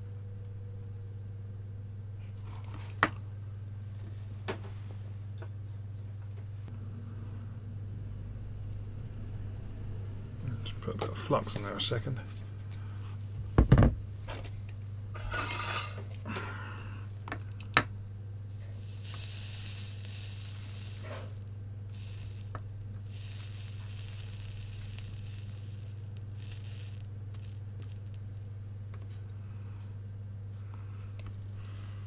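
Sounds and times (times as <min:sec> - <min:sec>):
steady low hum: 0:00.0 - 0:32.0
flux sizzling under soldering iron: 0:15.2 - 0:17.8, 0:18.5 - 0:29.3.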